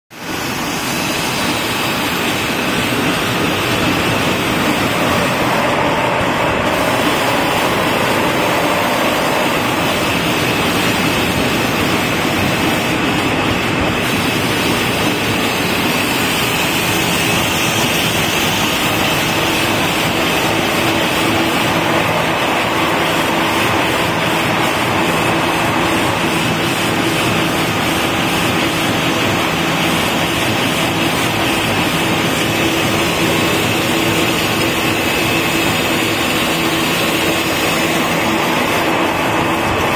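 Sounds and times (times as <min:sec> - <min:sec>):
wrapping machine running: 0:00.2 - 0:39.9.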